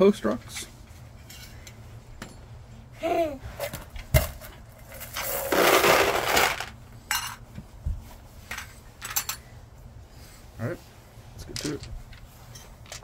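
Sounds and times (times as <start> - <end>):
rattling scrape: 4.8 - 6.7.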